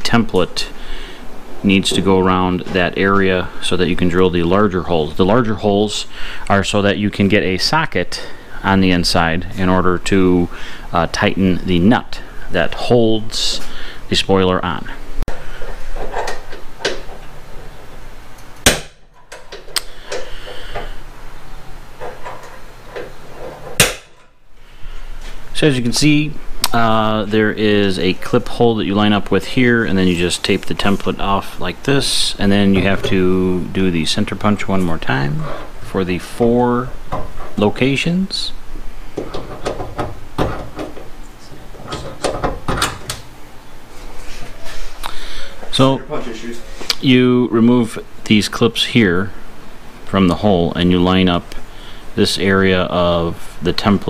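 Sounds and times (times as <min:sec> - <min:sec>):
loud sharp crack: 0:18.6 - 0:19.0, 0:23.8 - 0:24.2.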